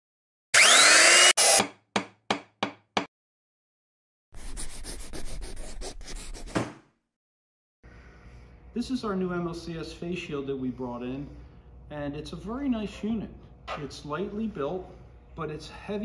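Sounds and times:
whirring saw blade: 0:00.5 - 0:01.7
marker writing on a board: 0:04.4 - 0:06.7.

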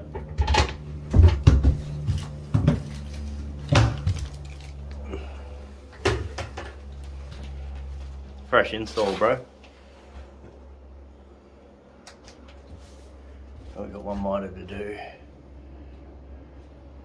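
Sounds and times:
knocks and clunks: 0:00.0 - 0:02.9
steady low hum: 0:00.0 - 0:17.0.

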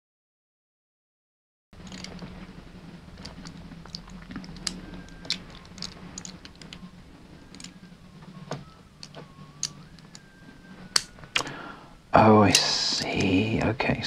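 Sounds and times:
metal puzzle pieces clicking: 0:01.8 - 0:02.2, 0:03.2 - 0:06.8, 0:07.5 - 0:07.8, 0:09.0 - 0:10.2.

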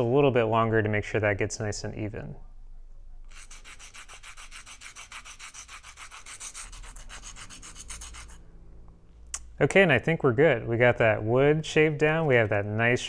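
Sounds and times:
pencil rubbing on sandpaper: 0:03.3 - 0:08.4.

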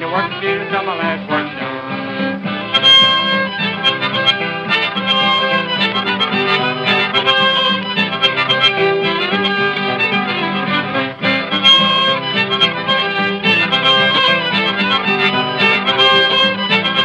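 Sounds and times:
harmonica melody: 0:00.0 - 0:17.0
strummed acoustic guitar: 0:00.0 - 0:17.0.

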